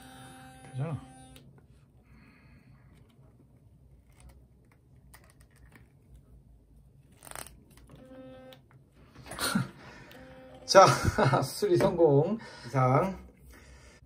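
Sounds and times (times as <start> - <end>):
plastic parts clicking: 4.0 - 6.2.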